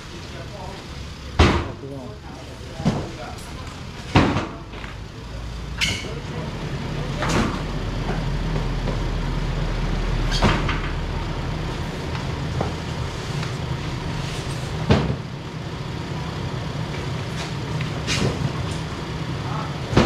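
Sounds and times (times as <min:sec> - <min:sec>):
loud sharp knocks: 0:01.4 - 0:01.8
truck engine idling: 0:03.7 - 0:20.0.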